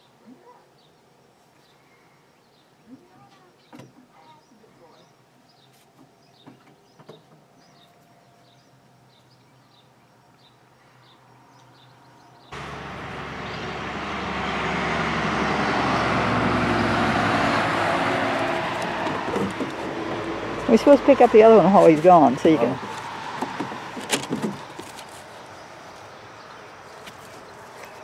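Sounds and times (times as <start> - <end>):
truck passing on road: 12.5 - 28.0.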